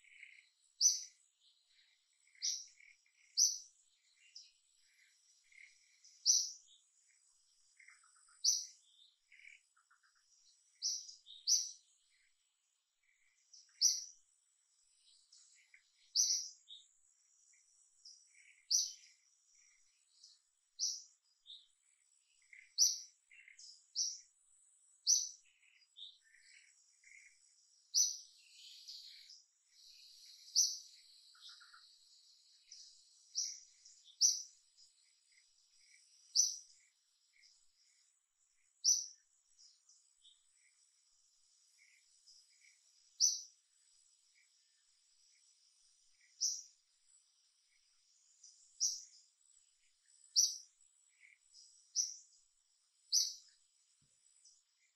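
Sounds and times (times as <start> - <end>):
faint insect drone: 0.0 - 54.9
high bird chirps: 50.1 - 52.3, 53.1 - 53.5.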